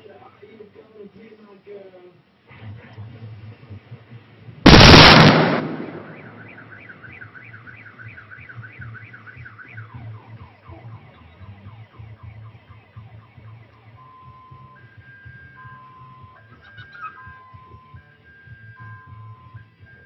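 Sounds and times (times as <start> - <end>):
loud explosion: 4.7 - 6.7
car alarm siren: 5.6 - 16.5, 17.1 - 20.0.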